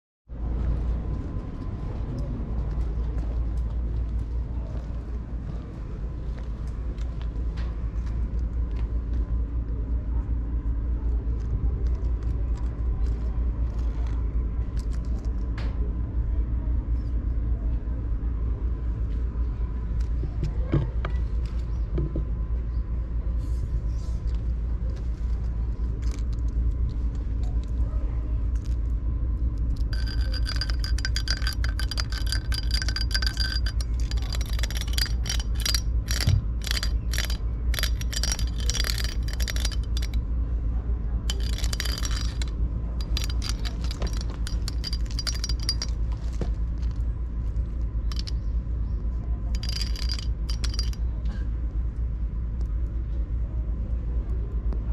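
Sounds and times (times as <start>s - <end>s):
steady low rumble: 0.3s - 54.9s
jingling cat toy: 29.8s - 40.2s, 41.3s - 46.0s, 48.1s - 48.4s, 49.6s - 51.0s.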